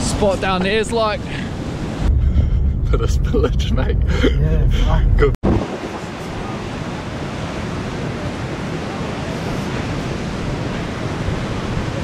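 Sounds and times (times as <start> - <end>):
ocean surf breaking on beach: 0.0 - 2.1, 5.4 - 12.0
wind on microphone: 1.3 - 12.0.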